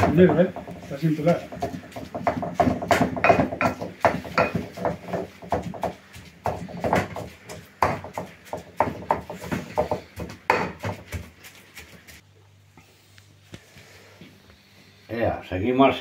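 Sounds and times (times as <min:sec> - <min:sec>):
wooden pestle pounding in a bowl: 0:00.0 - 0:11.6.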